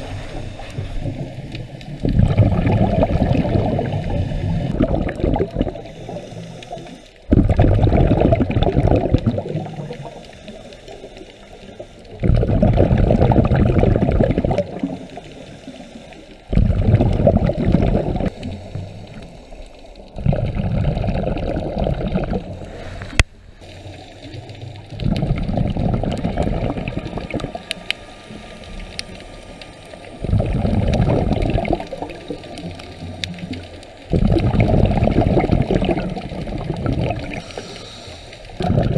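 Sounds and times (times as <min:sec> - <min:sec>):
exhaled bubbles rushing: 0:00.0 - 0:10.3, 0:12.1 - 0:15.4, 0:16.4 - 0:19.3, 0:20.1 - 0:37.7, 0:38.4 - 0:38.9
regulator inhalations: 0:05.6 - 0:07.3, 0:09.5 - 0:12.2, 0:14.6 - 0:16.9, 0:17.6 - 0:20.2, 0:26.6 - 0:33.1, 0:37.3 - 0:38.7.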